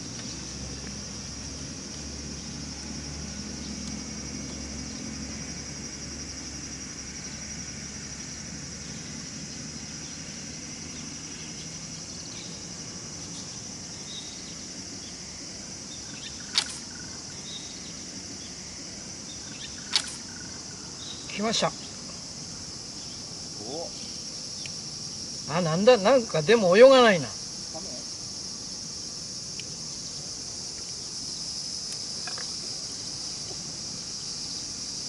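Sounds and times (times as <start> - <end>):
insects chirring shrilly: 0.0 - 35.0
sharp click: 16.5 - 16.8, 19.9 - 20.2.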